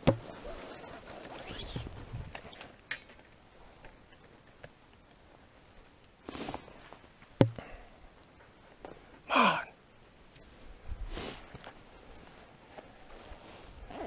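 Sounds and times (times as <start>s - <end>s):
clothing and gear rustling: 0.2s - 2.7s, 10.0s - 14.0s.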